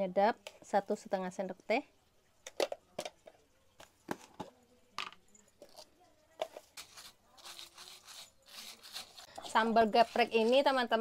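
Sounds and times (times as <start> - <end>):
spoon scraping plastic container: 5.6 - 11.0.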